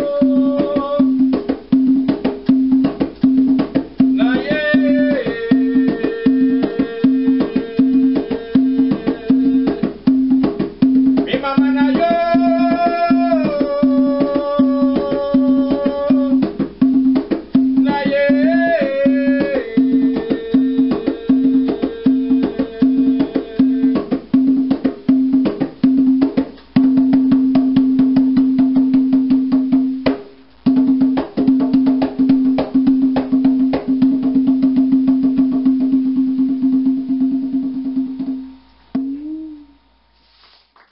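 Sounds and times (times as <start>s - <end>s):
man singing: 0.0s - 1.5s, 4.0s - 10.2s, 11.1s - 16.6s, 17.7s - 24.4s
hand drum rhythm: 0.0s - 39.9s
steady held tone: 38.3s - 40.2s.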